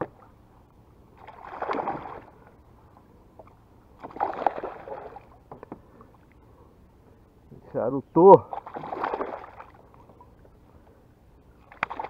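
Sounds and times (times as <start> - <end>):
fish thrashing and splashing: 1.2 - 2.4, 4.0 - 5.4, 8.5 - 10.2, 11.6 - 12.0.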